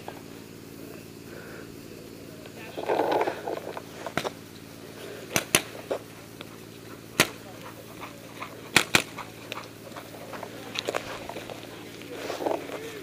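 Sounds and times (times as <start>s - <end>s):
low background hum: 0.0s - 13.0s
sharp pops: 5.3s - 6.5s, 7.1s - 7.7s, 8.7s - 9.8s.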